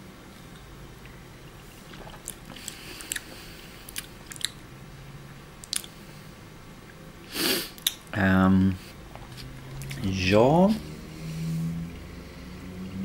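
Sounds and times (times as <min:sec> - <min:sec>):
lip smacks and tongue clicks: 0:01.9 - 0:04.6, 0:05.6 - 0:06.0, 0:07.8 - 0:08.1.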